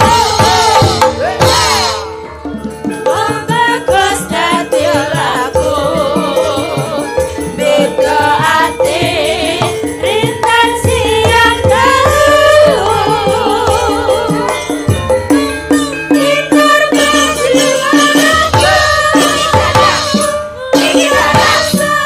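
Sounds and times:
women singing with vibrato: 0.0s - 2.2s, 3.0s - 14.9s, 16.1s - 22.0s
drums beating: 0.0s - 22.0s
metallophones ringing: 0.0s - 22.0s.

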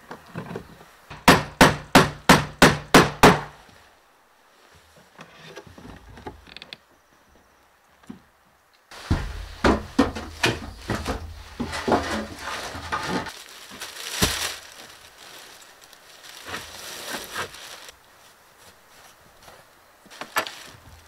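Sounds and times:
plastic rustling and crinkling: 8.9s - 21.0s
knocks: 9.1s - 12.0s.

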